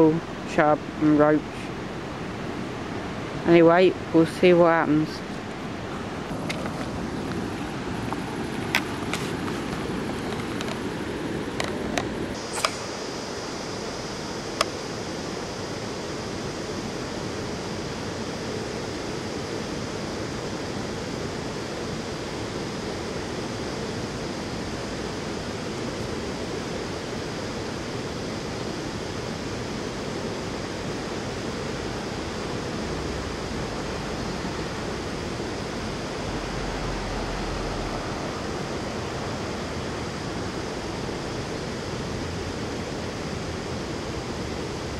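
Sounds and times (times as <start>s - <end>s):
river water rushing: 5.2s - 12.4s.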